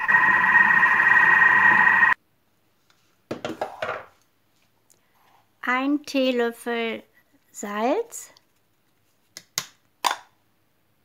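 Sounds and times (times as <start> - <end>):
kitchen machine high tone: 0.0 - 2.2
low hum: 0.0 - 2.2.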